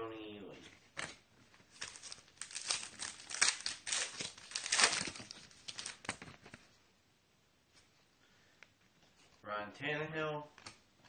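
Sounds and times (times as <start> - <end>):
foil wrapper tearing and crinkling: 1.7 - 6.2.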